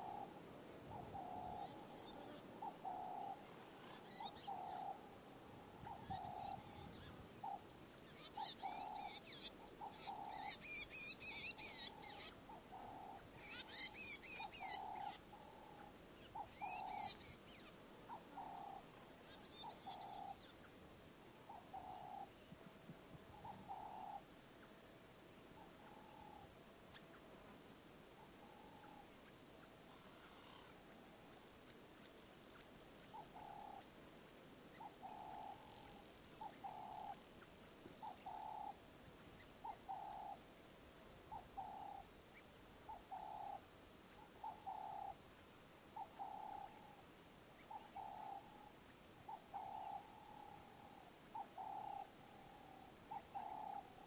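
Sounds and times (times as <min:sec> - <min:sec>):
bird low hooting: 0:00.0 - 0:20.5, 0:21.5 - 0:22.3, 0:23.3 - 0:24.3, 0:28.1 - 0:29.2, 0:29.9 - 0:30.9, 0:33.1 - 0:33.9, 0:34.7 - 0:37.2, 0:38.0 - 0:38.8, 0:39.6 - 0:40.4, 0:46.0 - 0:47.0, 0:49.3 - 0:54.0.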